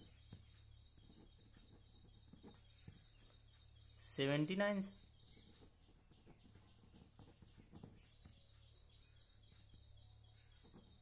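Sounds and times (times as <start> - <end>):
pen writing on paper: 5.5 - 8.5.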